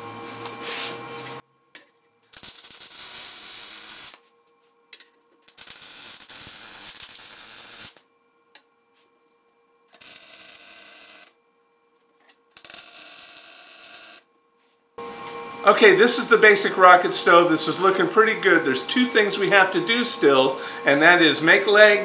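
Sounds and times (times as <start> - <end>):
welding arc crackling and sizzling: 2.2 - 4.2, 5.4 - 8.1, 9.9 - 11.4, 12.5 - 14.3.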